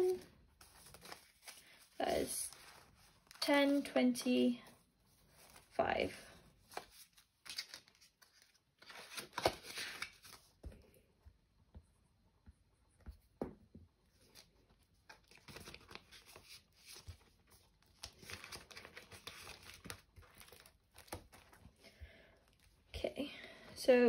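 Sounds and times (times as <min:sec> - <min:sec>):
paper and plastic rustling: 0:14.2 - 0:21.8.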